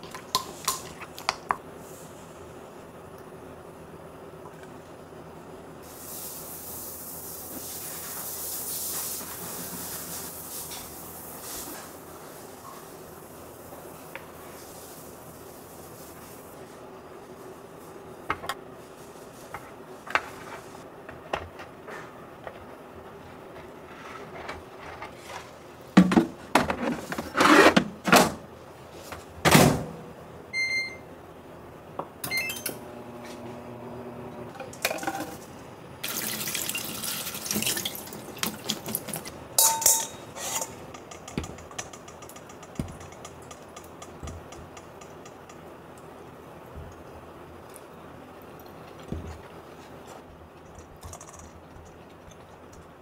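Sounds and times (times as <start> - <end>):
faucet running: 36.0 - 38.9
cookware knocking and clattering: 39.6 - 40.3.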